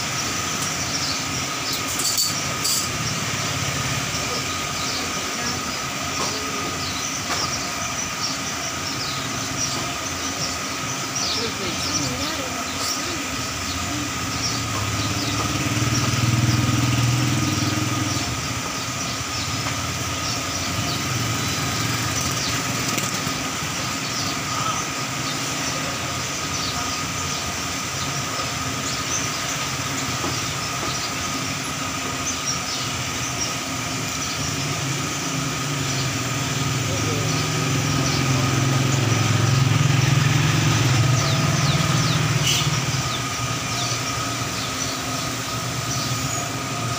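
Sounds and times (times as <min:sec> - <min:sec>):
street traffic engines: 0:00.0 - 0:46.9
vehicles passing close by: 0:00.0 - 0:46.9.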